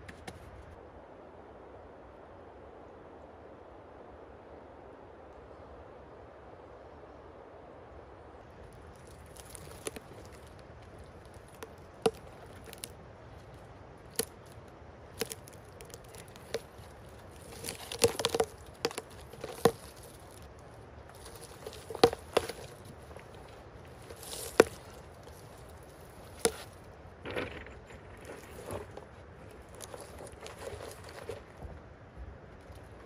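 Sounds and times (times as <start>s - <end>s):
forest litter crunching: 8.4s - 33.0s
twigs snapping: 8.6s - 31.7s.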